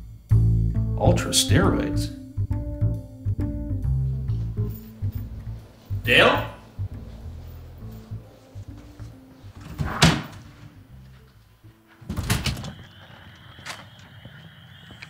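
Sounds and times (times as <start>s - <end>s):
soft background music: 0.0s - 13.6s
storm door knocking and rattling: 9.6s - 10.4s, 12.1s - 12.8s
door clacking: 9.6s - 10.6s, 12.0s - 12.8s.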